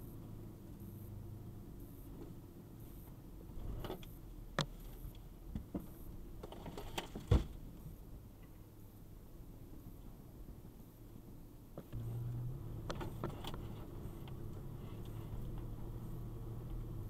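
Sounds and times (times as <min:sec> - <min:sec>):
low engine hum: 0:00.0 - 0:06.5, 0:07.5 - 0:17.0
knocks from truck body and stones: 0:05.5 - 0:07.6.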